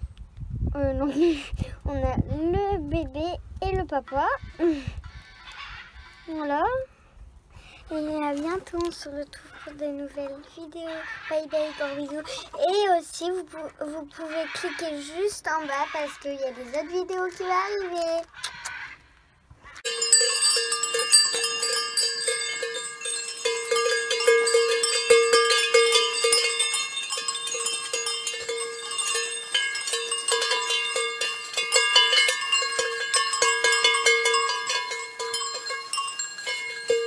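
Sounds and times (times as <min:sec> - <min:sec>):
bells jangling and ringing: 0:19.8 - 0:37.0.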